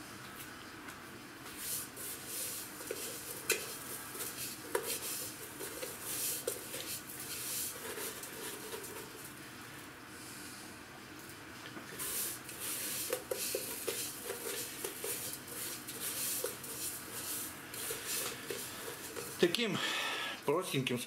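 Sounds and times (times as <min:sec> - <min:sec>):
seasoning rustling and scraping: 0:01.4 - 0:09.9, 0:11.8 - 0:19.6.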